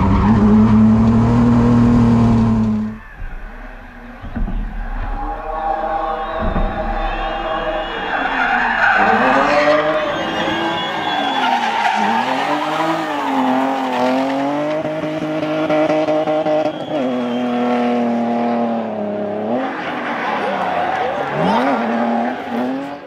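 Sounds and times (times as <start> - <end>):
race car engine revving: 0.0 - 23.0
tyres squealing: 2.7 - 14.5.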